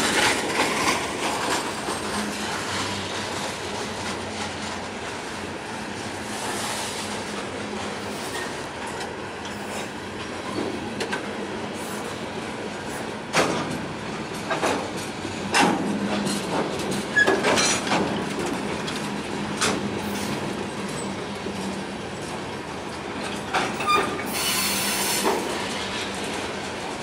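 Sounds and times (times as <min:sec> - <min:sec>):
train wheels rumbling on rail: 0:00.0 - 0:27.0
sharp knocks from train cars: 0:13.2 - 0:20.1, 0:23.2 - 0:26.8.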